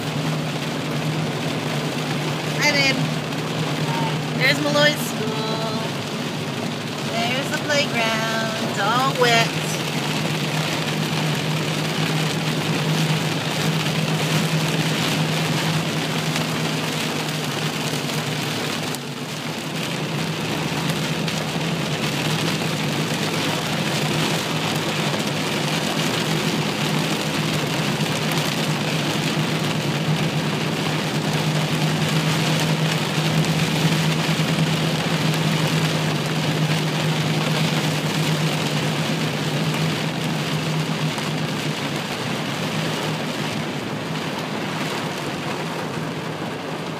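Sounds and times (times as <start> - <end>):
car and tyres humming on wet road: 0.0 - 46.9
heavy rain on car roof: 0.0 - 46.9.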